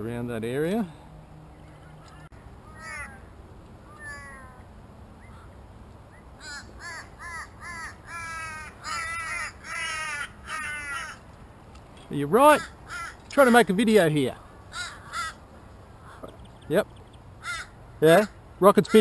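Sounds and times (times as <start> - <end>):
crows cawing: 1.8 - 5.6, 6.4 - 11.3, 12.4 - 16.5, 17.3 - 19.0.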